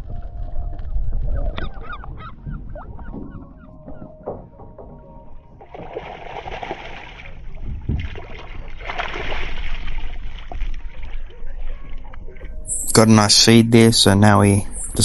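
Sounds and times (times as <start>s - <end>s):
fish splashing in water: 5.6s - 11.4s.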